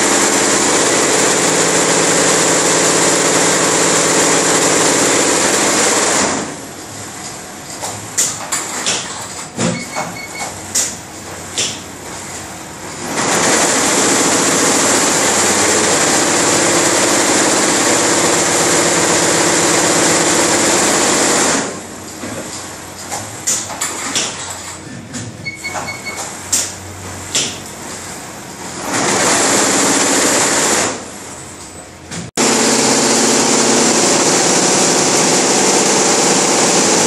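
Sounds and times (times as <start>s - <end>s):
embroidery machine fast stitching: 0.0s - 6.6s, 13.0s - 21.8s, 28.7s - 31.0s, 32.4s - 37.0s.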